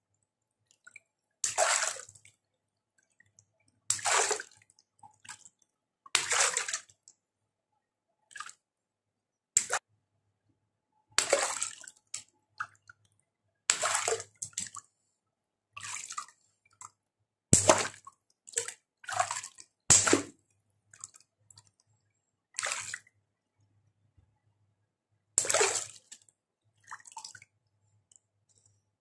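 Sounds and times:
water splashing and squirting: 1.4 - 2.3, 3.9 - 7.0, 11.2 - 12.8, 13.7 - 14.8, 17.6 - 20.4, 25.4 - 27.4.

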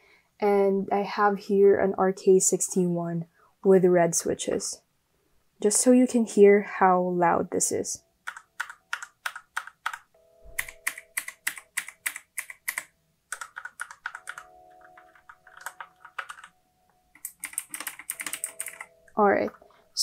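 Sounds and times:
mechanical keyboard typing: 8.2 - 16.5, 17.1 - 19.6.

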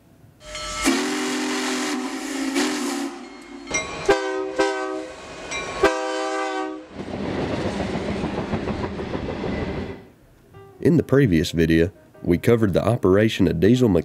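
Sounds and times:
diesel locomotive air horn: 0.4 - 5.2, 5.8 - 6.9
steam locomotive whistle: 0.4 - 6.9
passing train rumble: 0.4 - 10.2
rush of steam: 0.6 - 3.3.

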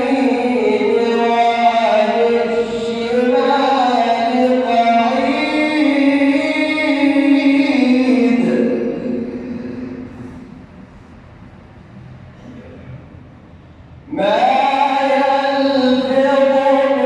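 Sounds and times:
man chanting melodically: 0.0 - 10.6, 14.0 - 17.0.

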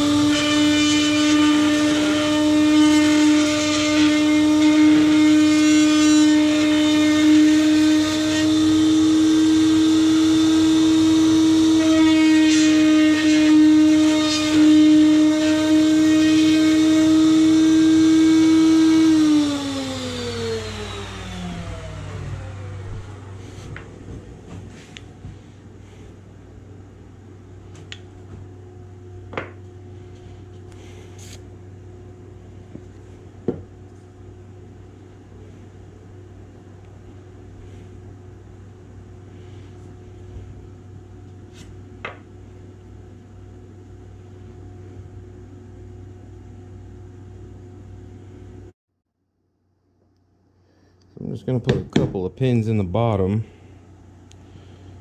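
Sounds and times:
router whine spinning down: 0.0 - 24.0
steady low hum: 19.8 - 48.8, 49.4 - 55.0.

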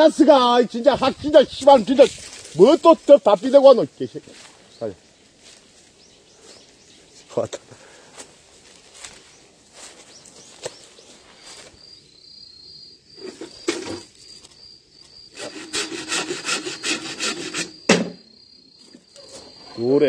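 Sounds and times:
high insect trill: 0.0 - 20.0
hand saw cutting bamboo: 15.3 - 18.2
sharp knock: 17.9 - 18.2.

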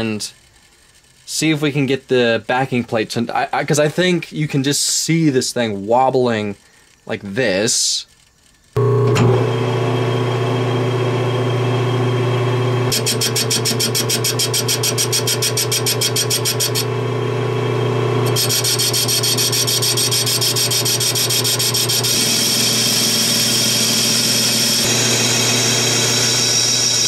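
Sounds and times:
lathe motor hum: 8.8 - 27.0
lathe tool cutting steel: 8.8 - 27.0.

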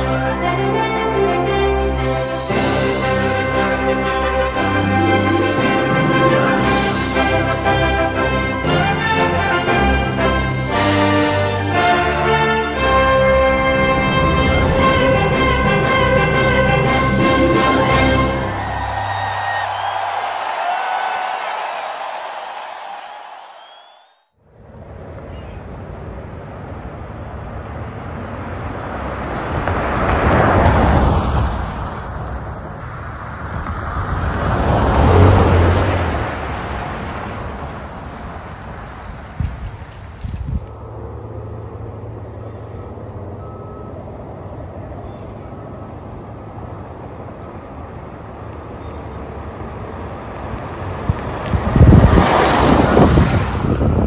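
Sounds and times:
tyres rushing: 0.0 - 24.0
pickup engine rumble: 24.7 - 54.0.

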